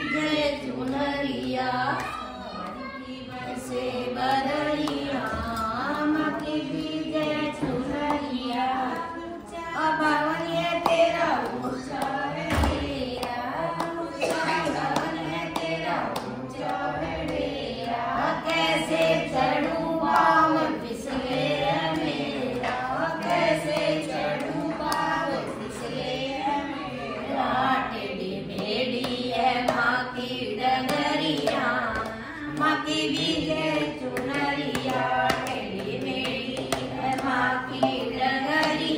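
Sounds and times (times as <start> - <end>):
women singing a hymn: 0.0 - 38.9
hand-clapping: 0.5 - 26.5, 27.2 - 38.9.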